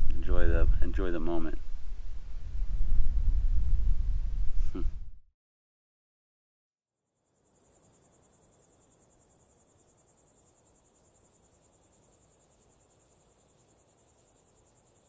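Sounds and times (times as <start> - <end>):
crickets chirping: 7.0 - 15.0.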